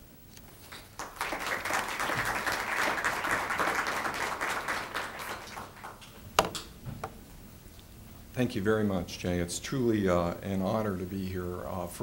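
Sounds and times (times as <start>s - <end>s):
audience applauding: 0.6s - 6.3s.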